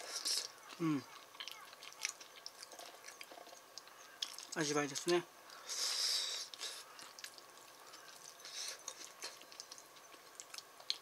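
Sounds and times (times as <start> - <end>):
hissing mouth sounds: 5.7 - 6.9.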